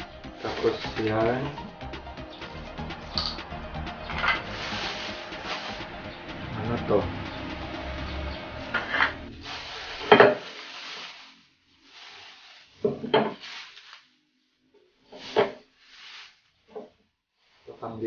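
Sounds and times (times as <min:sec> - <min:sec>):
plastic bag rustling: 0:00.3 - 0:01.6, 0:04.1 - 0:06.8, 0:09.3 - 0:16.7.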